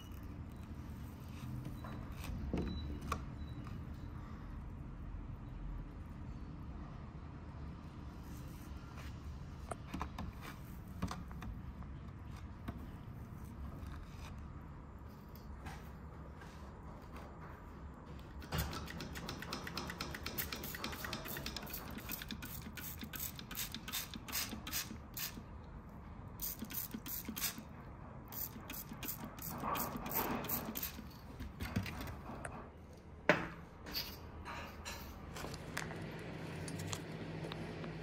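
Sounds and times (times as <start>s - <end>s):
spray bottle squirting: 20.1s - 25.4s, 26.4s - 27.6s, 28.3s - 31.1s.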